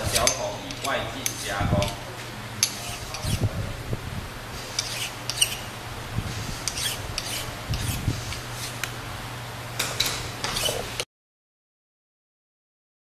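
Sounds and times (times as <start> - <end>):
hand file scraping steel: 0.0 - 2.0, 2.6 - 3.5, 4.6 - 5.7, 6.4 - 8.9, 10.4 - 11.0.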